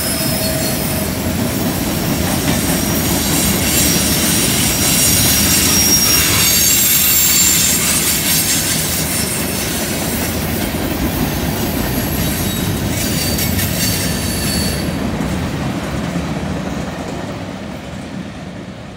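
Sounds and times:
train wheels rumbling and clattering: 0.0 - 18.9
wheel flange squeal: 2.8 - 10.3, 12.1 - 15.0.

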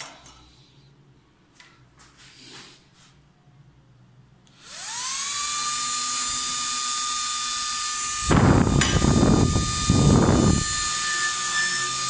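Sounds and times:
small air blower whining: 4.5 - 12.0
loud rushing noise: 8.2 - 10.8.

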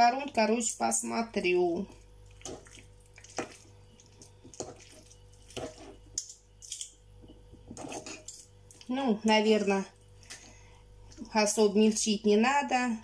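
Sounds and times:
wet squishing of meat: 2.0 - 5.8
fork scraping meat and bowl: 7.7 - 8.5.

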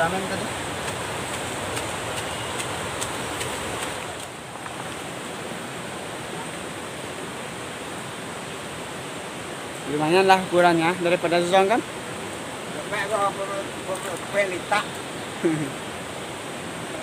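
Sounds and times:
river water rushing: 0.0 - 17.0
steady high hiss: 0.0 - 17.0.

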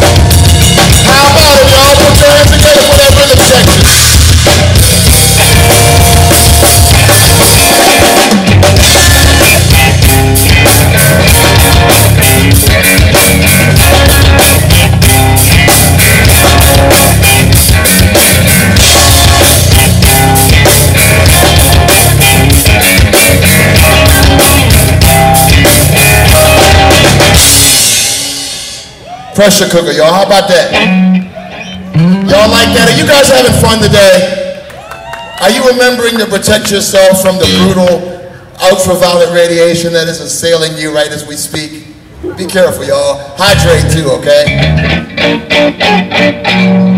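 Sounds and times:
electric bass: 0.0 - 29.0, 30.0 - 34.4, 36.5 - 38.6, 41.9 - 46.9
electric guitar: 0.0 - 29.1, 30.4 - 35.4, 37.2 - 38.1, 43.4 - 46.9
drum kit: 0.0 - 29.2.

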